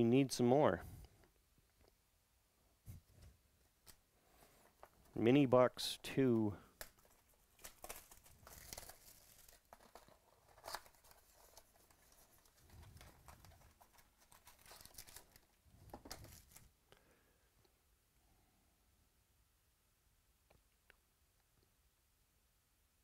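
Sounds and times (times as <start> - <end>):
plastic wrapping crinkling and tearing: 6.8 - 16.7.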